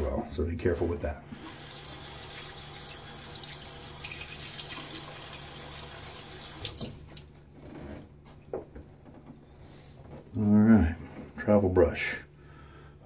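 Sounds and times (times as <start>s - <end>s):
tap running water into sink: 1.4s - 7.3s.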